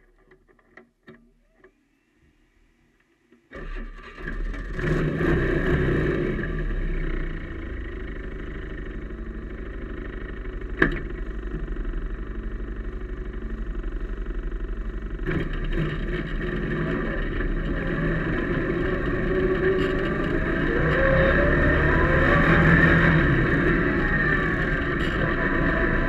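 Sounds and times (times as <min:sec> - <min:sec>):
atv engine idling: 0:06.4 - 0:26.0.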